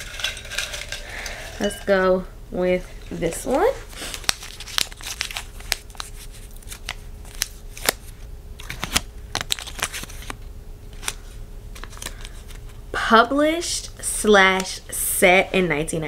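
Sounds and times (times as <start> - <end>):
paper crinkling: 2.9 - 12.8.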